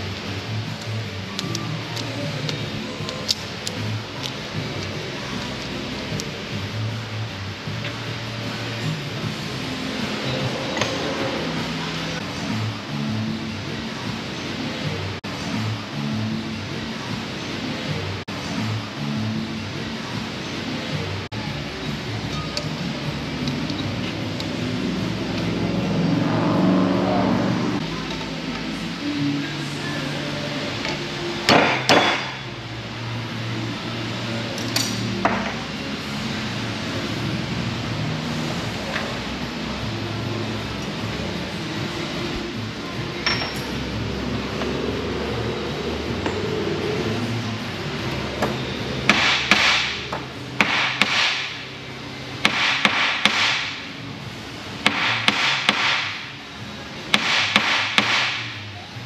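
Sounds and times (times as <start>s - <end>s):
hammer striking metal wrench: 30.8s - 32.5s, 43.2s - 43.8s
hammer striking metal: 31.5s - 32.5s, 49.1s - 51.6s, 52.4s - 53.9s, 54.8s - 56.4s, 57.1s - 58.6s.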